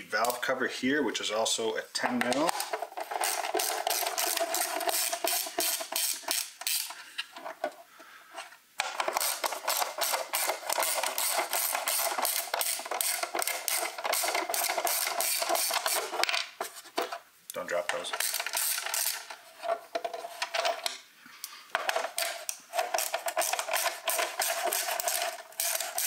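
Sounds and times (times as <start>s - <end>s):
socket ratchet clicking: 3.2s - 6.9s.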